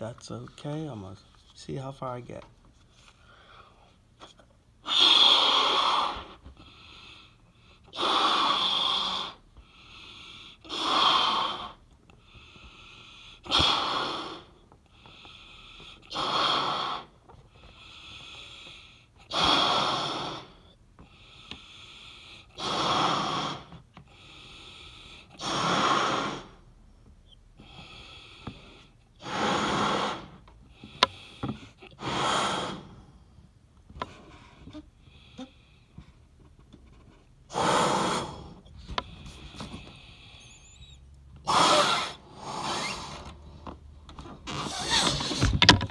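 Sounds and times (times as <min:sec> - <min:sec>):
quiet inhalations: 0:00.2 - 0:44.0
person blowing into balloon: 0:04.8 - 0:06.4, 0:10.6 - 0:11.8, 0:16.1 - 0:17.1, 0:22.4 - 0:23.8, 0:25.2 - 0:26.7, 0:29.2 - 0:30.4, 0:31.8 - 0:33.0, 0:37.5 - 0:43.3, 0:44.4 - 0:45.6.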